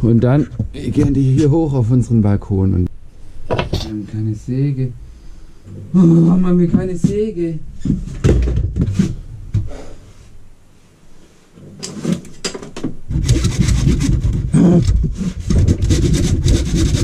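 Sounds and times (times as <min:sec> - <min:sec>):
knocks and clicks of handling: 0:03.5 - 0:03.9, 0:11.8 - 0:13.0
saw cutting wood: 0:13.1 - 0:14.6, 0:15.5 - 0:17.0.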